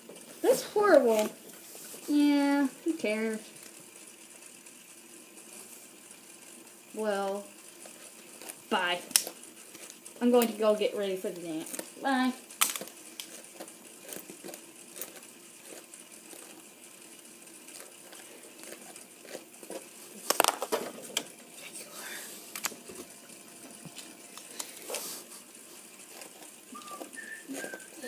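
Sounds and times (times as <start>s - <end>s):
plastic toy pieces clicking: 12.6s - 16.6s.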